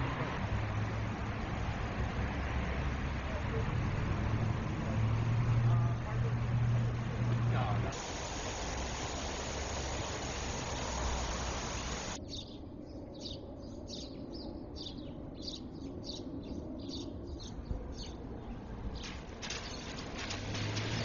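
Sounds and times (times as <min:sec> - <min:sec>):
lawn sprinkler hissing: 0:07.8 - 0:12.2
small birds chirping: 0:08.0 - 0:21.0.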